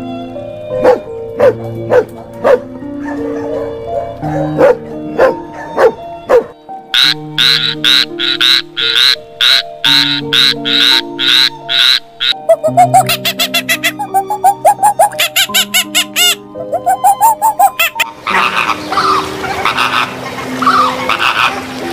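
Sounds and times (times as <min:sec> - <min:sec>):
background music: 0:00.0 - 0:21.9
dog barking: 0:00.8 - 0:06.6
tree frog croaking: 0:06.9 - 0:21.6.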